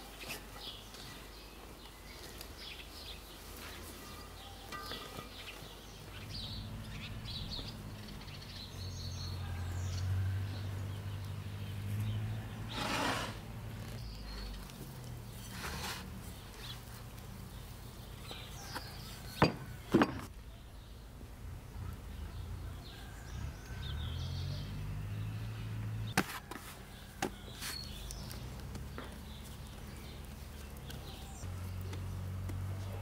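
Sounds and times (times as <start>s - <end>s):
bread dough handled on board: 26.2s - 28.8s.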